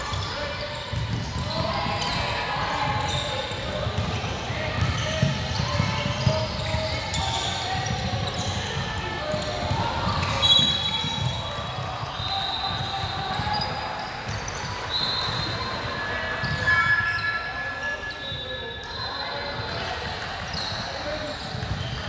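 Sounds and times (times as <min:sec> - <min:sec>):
sneaker squeaks: 0:00.0 - 0:22.0
basketball bouncing: 0:00.9 - 0:02.1, 0:03.1 - 0:11.8.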